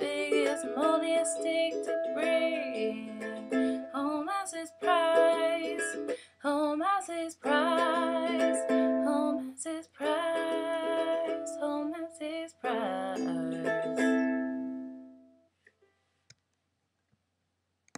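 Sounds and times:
ukulele strummed in chords: 0:00.0 - 0:06.2, 0:07.4 - 0:15.4
woman singing with vibrato: 0:00.0 - 0:14.1.

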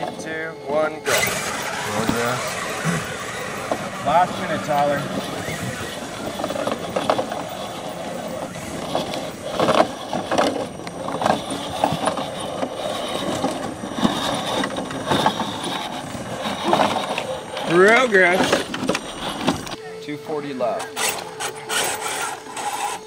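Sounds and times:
electric motor whirring: 0:00.0 - 0:23.0.

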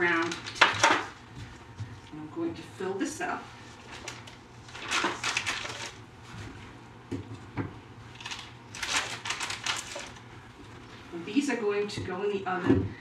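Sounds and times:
plastic bag crinkling: 0:00.0 - 0:01.2, 0:03.7 - 0:06.0, 0:08.1 - 0:10.9.

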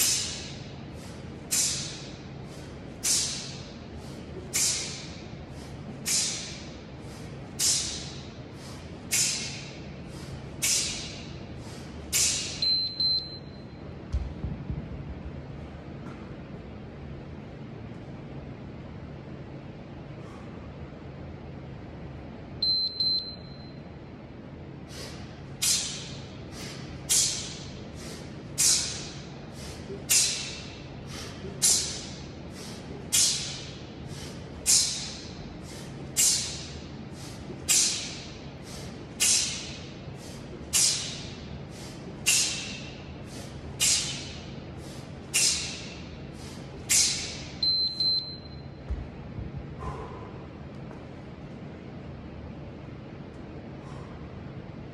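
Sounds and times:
sharp hissing exhale: 0:00.0 - 0:12.6, 0:24.9 - 0:47.5
timer double beep: 0:12.6 - 0:13.6, 0:22.6 - 0:23.8, 0:47.6 - 0:48.8.

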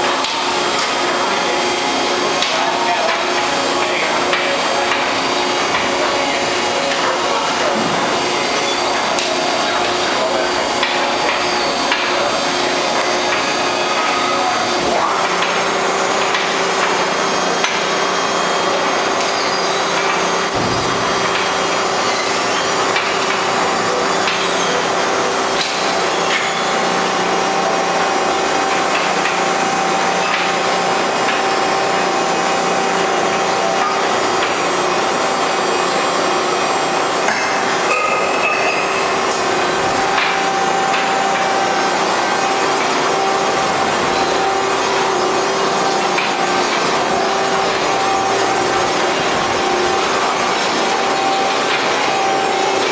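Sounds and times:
steady hum: 0:00.0 - 0:52.9
baler mechanical din: 0:19.9 - 0:26.6.

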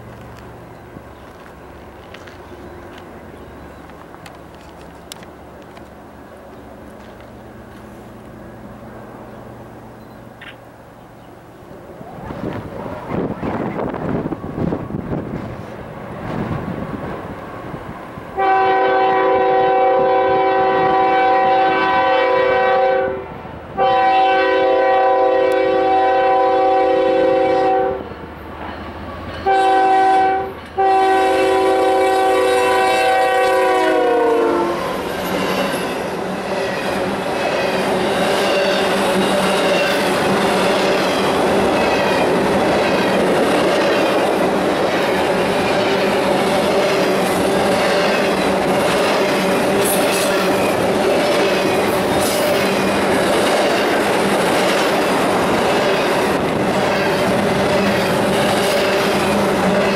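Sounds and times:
wheels clacking over rail joints: 0:00.0 - 0:08.4, 0:34.8 - 0:59.9
locomotive air horn blasts: 0:18.4 - 0:28.0, 0:29.4 - 0:35.0.

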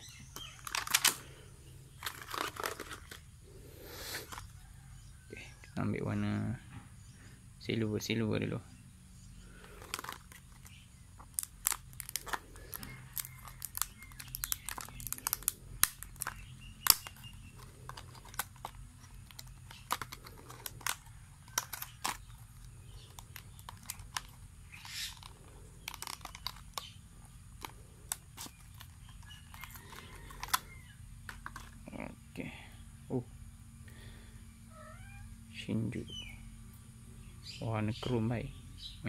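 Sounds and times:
plastic packaging crinkling: 0:00.3 - 0:01.3, 0:01.9 - 0:03.2, 0:09.6 - 0:31.7.

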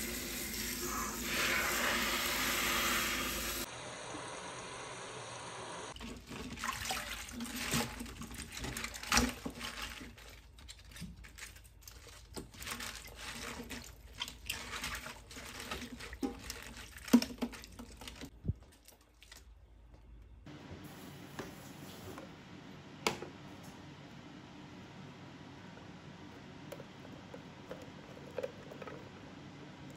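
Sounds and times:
water splashing and sloshing: 0:05.9 - 0:20.0.

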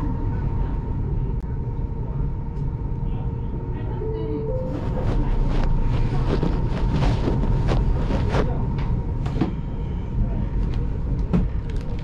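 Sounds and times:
train carriage rumble: 0:00.0 - 0:12.0
cloth towel rustling on microphone: 0:04.7 - 0:08.6.

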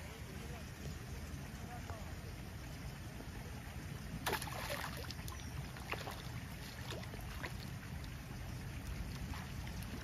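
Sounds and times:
fish splashing in water: 0:03.9 - 0:10.0.

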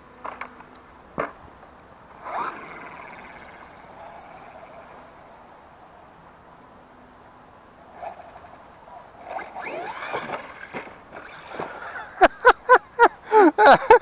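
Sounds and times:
electric motor whining: 0:02.1 - 0:05.3, 0:09.2 - 0:11.8.

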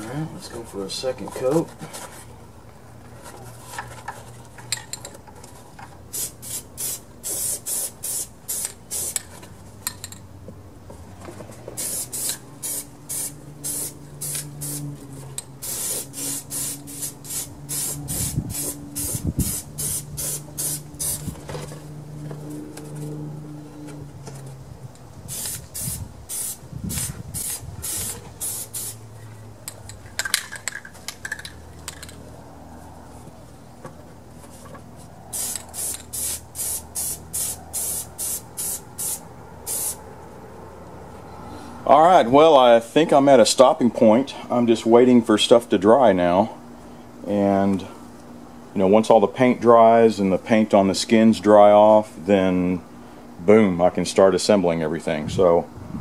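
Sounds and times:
spray paint can spraying: 0:06.1 - 0:09.3, 0:11.8 - 0:14.9, 0:15.6 - 0:21.4, 0:25.3 - 0:29.0, 0:35.3 - 0:40.0.

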